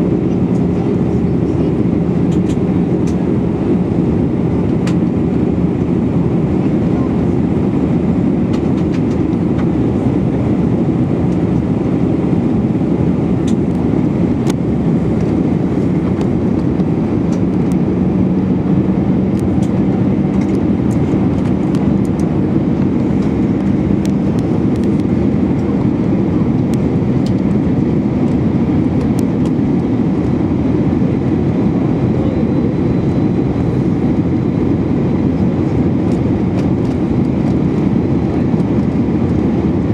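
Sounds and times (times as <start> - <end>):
air rushing along fuselage: 0.0 - 39.9
jet engine drone: 0.0 - 39.9.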